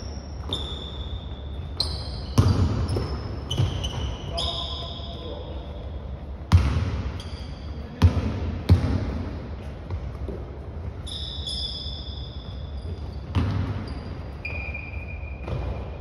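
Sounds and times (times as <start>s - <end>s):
sneakers squeaking: 0.0s - 16.0s
basketball bouncing on wooden floor: 1.8s - 4.2s, 6.5s - 9.3s, 12.9s - 14.0s.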